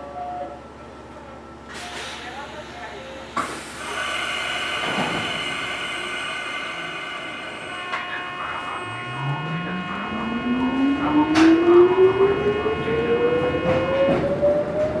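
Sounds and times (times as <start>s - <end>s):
steady high tones: 3.8s - 14.1s
traction motor whine: 4.2s - 15.0s.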